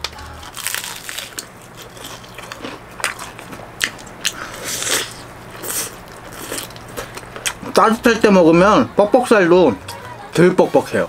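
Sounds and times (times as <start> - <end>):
crunching fried chicken: 0.0 - 7.9
wet chewing: 0.4 - 7.8.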